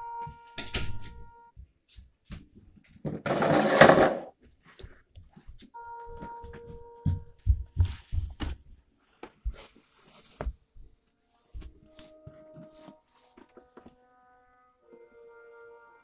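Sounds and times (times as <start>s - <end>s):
faint steady tones: 5.8s - 7.9s.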